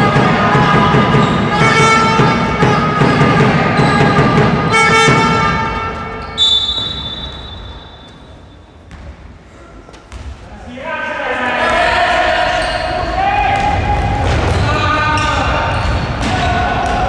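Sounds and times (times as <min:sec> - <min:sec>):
referee's whistle: 0:00.9 - 0:08.6.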